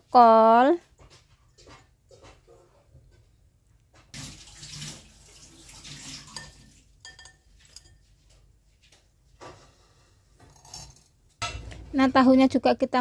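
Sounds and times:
metal spoon scraping strainer: 0:06.0 - 0:08.0, 0:10.4 - 0:11.2.

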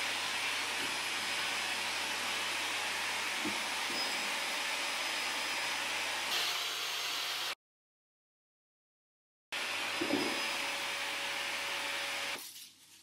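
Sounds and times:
vacuum cleaner running: 0:00.0 - 0:07.6, 0:09.6 - 0:12.4.

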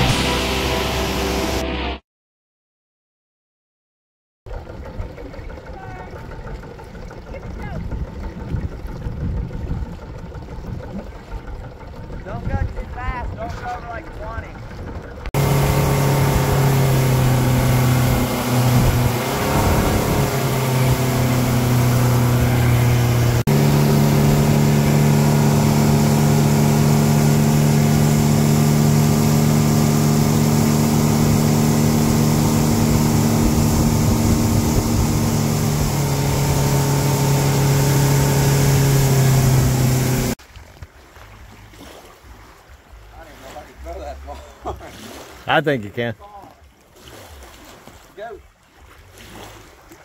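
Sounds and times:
motorboat engine running: 0:00.0 - 0:01.6, 0:04.5 - 0:50.0
rushing water: 0:04.5 - 0:50.0
rushing wind: 0:15.4 - 0:40.4.

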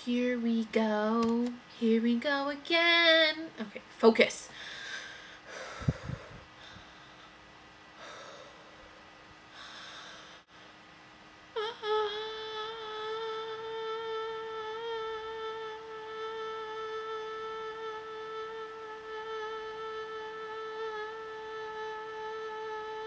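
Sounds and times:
woman breathing: 0:04.5 - 0:10.9
woman singing long note: 0:11.6 - 0:23.0.

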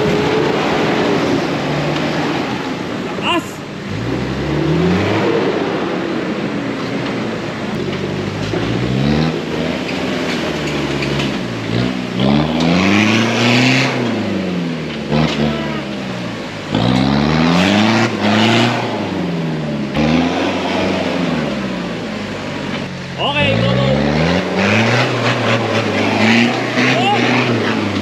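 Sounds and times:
engine revving: 0:00.0 - 0:28.0
water splashing from tyres: 0:07.3 - 0:28.0.

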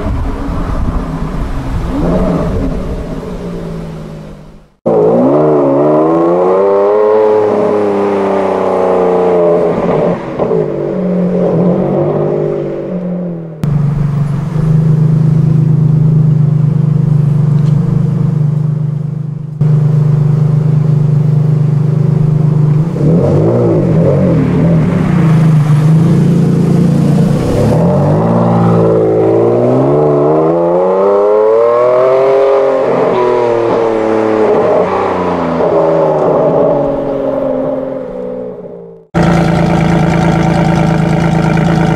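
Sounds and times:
car engine revving: 0:00.8 - 0:41.9.

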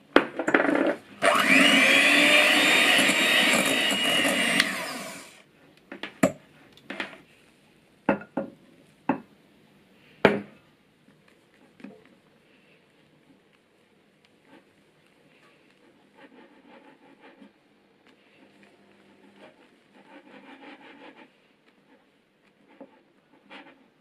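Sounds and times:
electric hand mixer running: 0:01.2 - 0:05.4.

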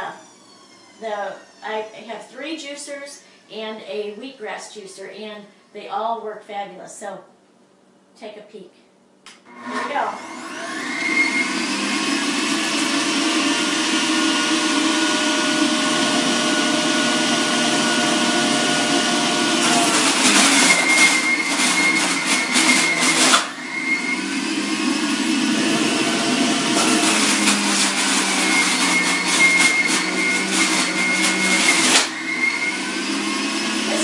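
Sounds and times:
juicer motor running: 0:00.0 - 0:01.6, 0:09.4 - 0:34.0
carrot shredded with rattling grinding: 0:10.4 - 0:34.0.

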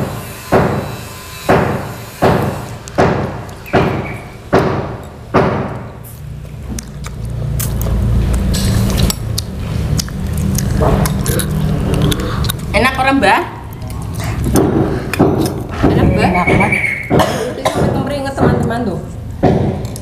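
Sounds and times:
ringing hammer blows: 0:00.0 - 0:05.6.

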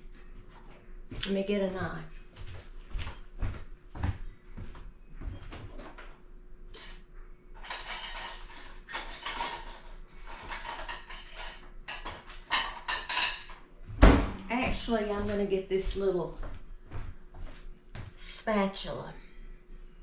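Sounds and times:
metal utensils clattering: 0:07.6 - 0:13.6.

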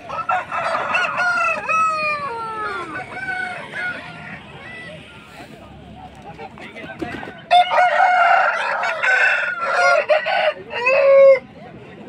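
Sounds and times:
rooster crowing: 0:00.0 - 0:04.9, 0:07.5 - 0:11.4.

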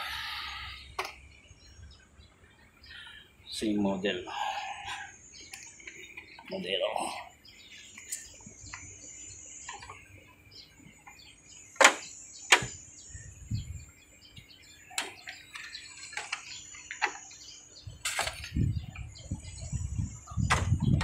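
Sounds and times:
small birds chirping: 0:00.0 - 0:21.0.

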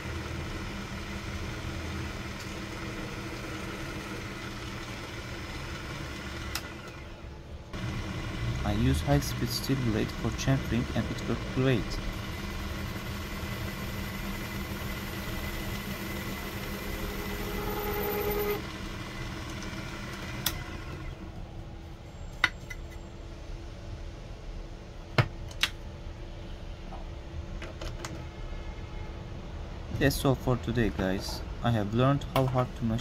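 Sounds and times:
lathe motor hum: 0:00.0 - 0:21.3
brief whining tone: 0:16.2 - 0:18.7.

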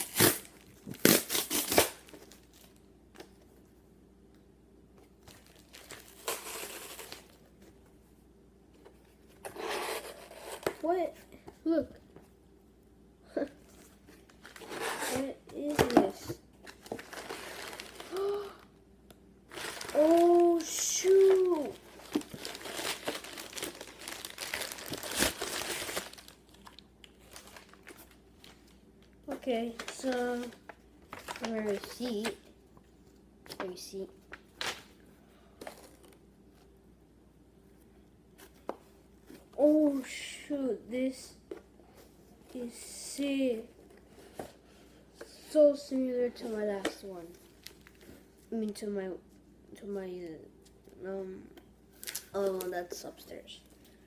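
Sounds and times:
packaging rustling and crinkling: 0:05.2 - 0:07.4, 0:16.7 - 0:18.4, 0:19.5 - 0:32.4, 0:47.4 - 0:48.4.

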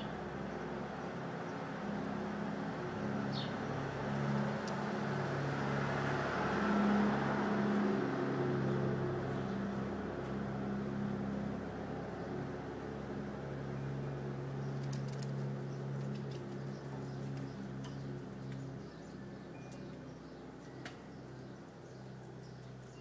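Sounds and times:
car passing by: 0:02.4 - 0:12.7.

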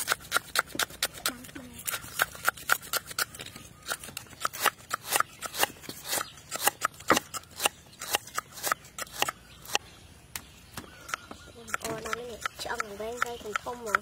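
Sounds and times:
cleaver chopping on wooden board: 0:10.8 - 0:14.0.

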